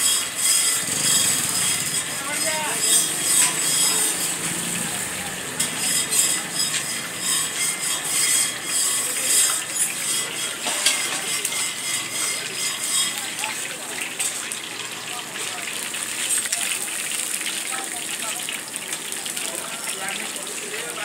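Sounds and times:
metal skimmer scraping pan: 0:00.0 - 0:15.1
food deep-frying in hot oil: 0:00.0 - 0:21.0.

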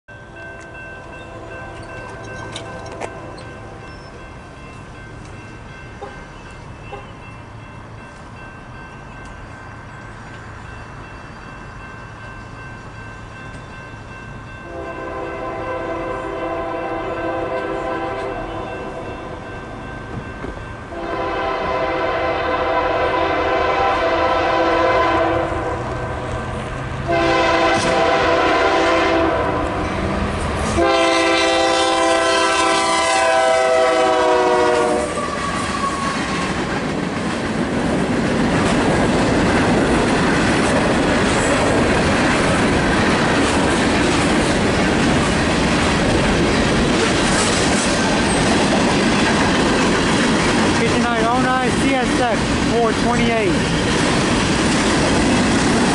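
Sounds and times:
train rumbling by: 0:00.1 - 0:55.9
locomotive air horn blasts: 0:14.6 - 0:19.2, 0:20.9 - 0:25.8, 0:27.1 - 0:29.8, 0:30.7 - 0:36.1.

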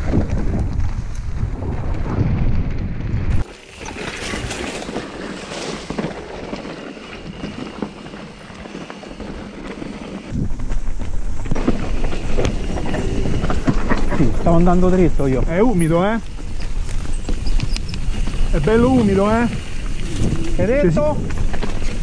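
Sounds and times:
wind rumbling on microphone: 0:00.0 - 0:22.0
bike clicks and rattles: 0:02.8 - 0:22.0.

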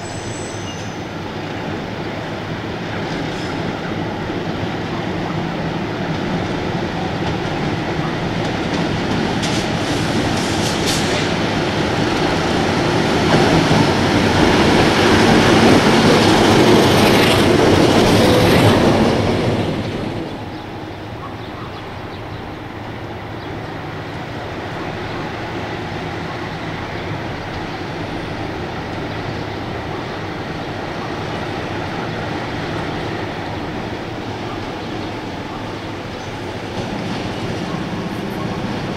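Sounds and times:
high wheel squeal: 0:00.0 - 0:01.1
diesel locomotive engine drone: 0:00.0 - 0:38.9
train wheels clattering on track: 0:00.0 - 0:38.9.

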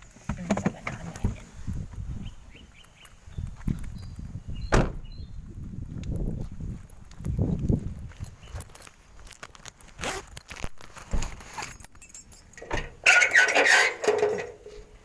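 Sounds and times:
metallic clatter and scrape: 0:10.5 - 0:15.0
metal gate clinking and rattling: 0:11.4 - 0:14.9
gate squealing: 0:12.6 - 0:14.6.

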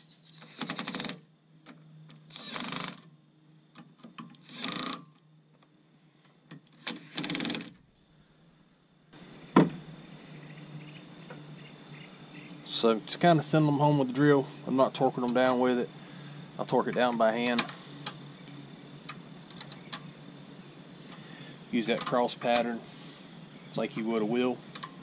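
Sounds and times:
cordless drill rattling: 0:04.4 - 0:05.0, 0:06.8 - 0:07.8.

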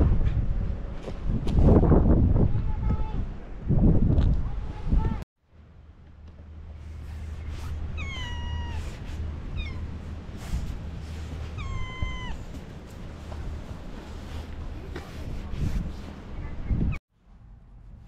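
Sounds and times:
steady low rumble: 0:00.0 - 0:18.0
cat meowing: 0:07.9 - 0:09.9, 0:11.4 - 0:12.5.

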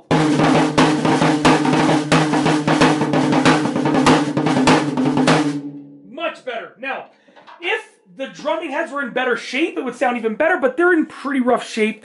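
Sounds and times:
muffled tom drum roll: 0:00.1 - 0:05.8.

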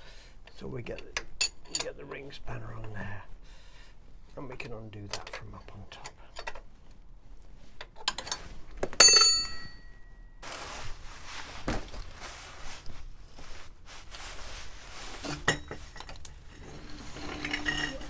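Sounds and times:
metal clinks: 0:09.0 - 0:10.2
metal scraping and rustling: 0:10.4 - 0:18.0.

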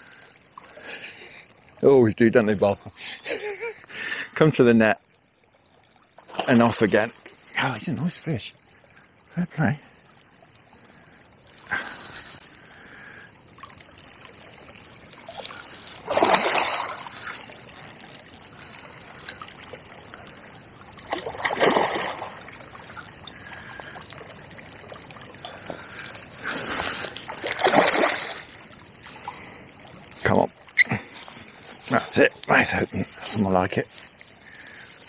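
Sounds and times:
fish splashing at surface: 0:14.7 - 0:19.9, 0:21.1 - 0:22.6, 0:23.4 - 0:29.4.

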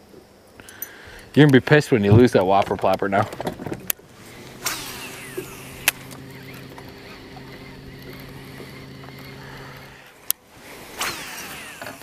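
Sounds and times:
electric trolling motor humming: 0:04.1 - 0:12.0.

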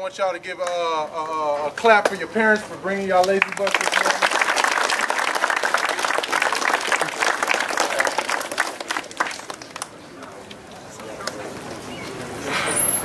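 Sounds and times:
crowd applauding: 0:03.2 - 0:10.0.

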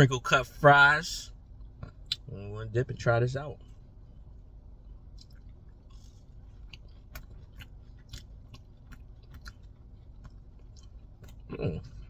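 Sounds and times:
low steady hum: 0:00.0 - 0:12.0
person chewing crunchy food: 0:03.6 - 0:12.0.

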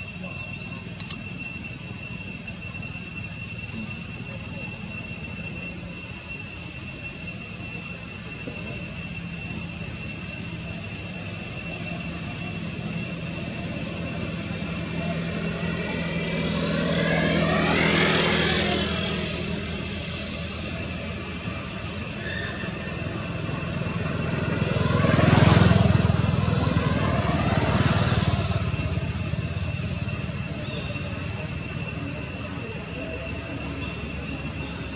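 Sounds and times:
low traffic rumble: 0:00.0 - 0:34.9
thin high whine: 0:00.0 - 0:34.9
vehicles passing by: 0:13.3 - 0:34.9.

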